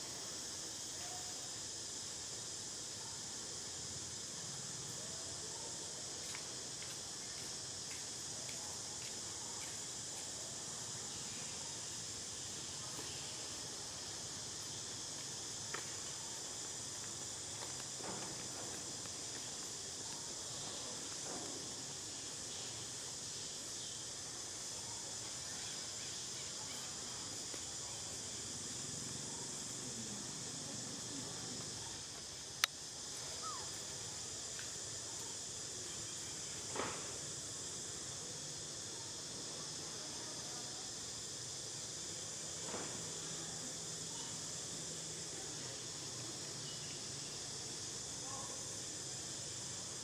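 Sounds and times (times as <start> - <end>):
insect chorus drone: 0.0 - 50.0
faint ticks: 32.6 - 32.8.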